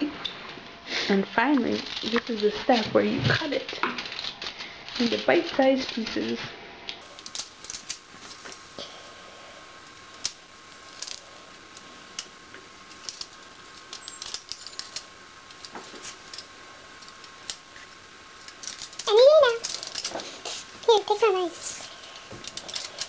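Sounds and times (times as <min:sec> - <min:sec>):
faint steady hiss: 0:00.0 - 0:23.0
foil crinkling: 0:01.6 - 0:06.2, 0:10.0 - 0:23.0
scissors snipping foil: 0:01.6 - 0:06.4, 0:07.0 - 0:08.6, 0:12.2 - 0:17.7, 0:18.4 - 0:21.1, 0:21.8 - 0:23.0.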